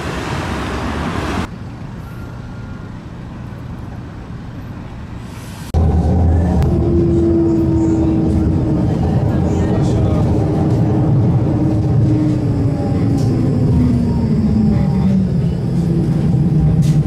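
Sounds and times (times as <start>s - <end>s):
rail vehicle rushing noise: 0.0s - 17.0s
low rumble: 5.7s - 17.0s.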